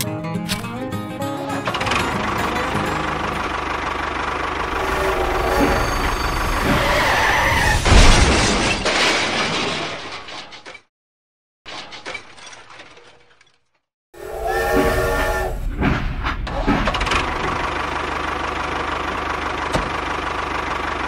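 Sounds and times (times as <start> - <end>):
tractor engine running: 1.2 - 7.5, 16.4 - 21.0
loud crash: 4.6 - 10.6.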